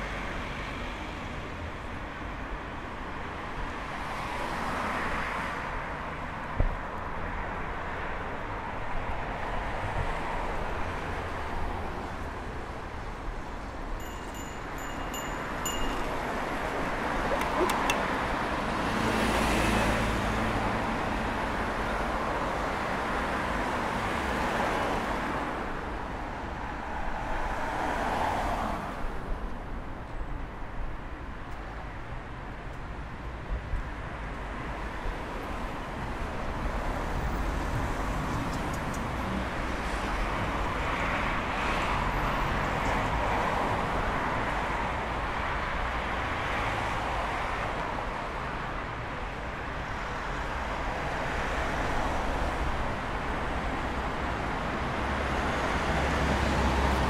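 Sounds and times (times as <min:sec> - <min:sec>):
cars driving past: 0:14.8 - 0:25.7, 0:50.1 - 0:57.0.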